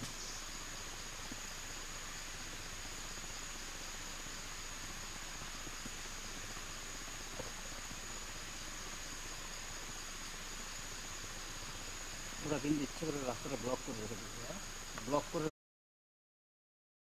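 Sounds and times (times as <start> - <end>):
insect chorus: 0.0 - 15.5
soft hiss: 0.0 - 15.5
faint ticks: 4.8 - 8.6, 14.9 - 15.2.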